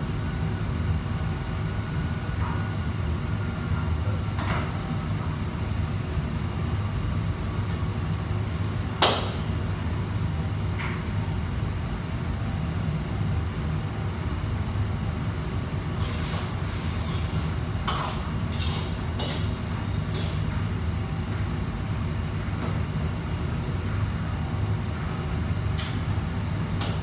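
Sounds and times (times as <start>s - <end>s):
low kitchen rumble: 0.0s - 27.0s.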